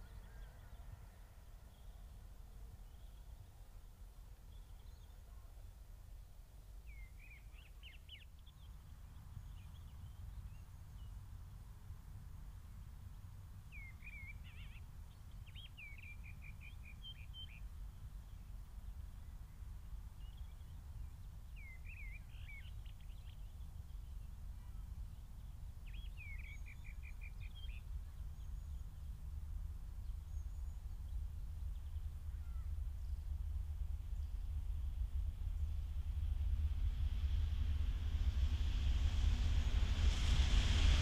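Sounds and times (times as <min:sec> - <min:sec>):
songbird singing: 0:00.0 - 0:36.0
distant steam train rumble: 0:24.1 - 0:41.0.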